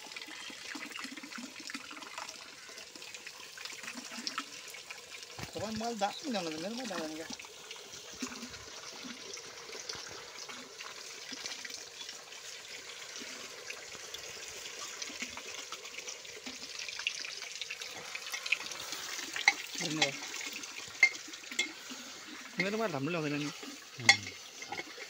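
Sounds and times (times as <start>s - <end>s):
meat sizzling in hot oil: 3.8s - 25.0s
spoon scraping pot: 24.0s - 25.0s.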